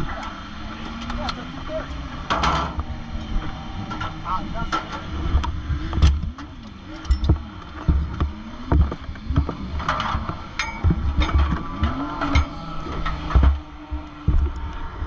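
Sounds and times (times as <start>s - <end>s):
engine revving: 0.0s - 15.0s
knocks and rattles of car body: 0.0s - 15.0s.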